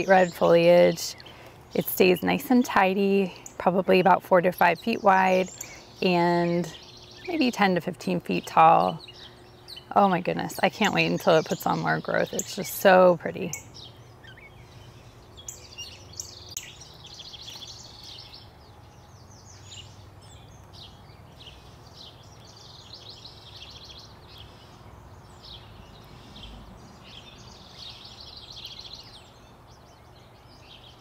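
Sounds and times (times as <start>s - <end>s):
songbirds chirping and singing: 0.0s - 31.0s.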